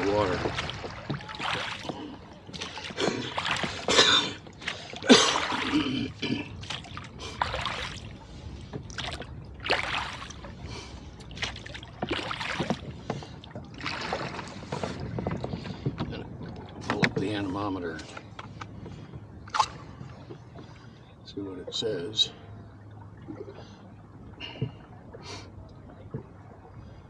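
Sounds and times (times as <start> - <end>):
oars splashing in water: 0.0 - 27.0.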